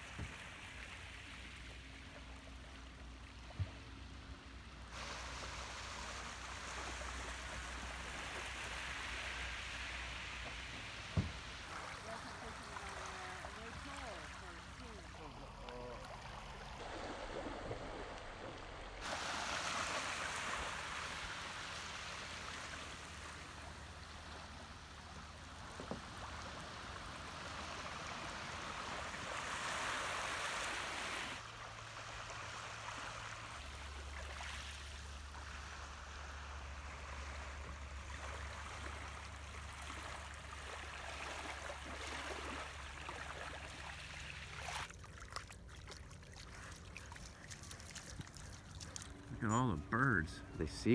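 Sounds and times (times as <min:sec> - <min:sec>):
small waves lapping on gravel: 0:04.9 - 0:50.1
low steady hum: 0:31.3 - 0:50.9.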